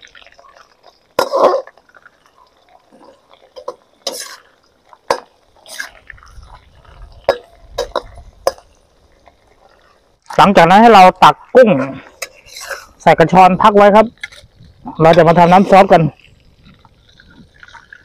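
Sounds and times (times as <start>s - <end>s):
shrimp frying in hot oil: 0.0s - 18.0s
metal spatula scraping wok: 1.2s - 1.8s, 3.6s - 6.6s, 11.8s - 13.1s.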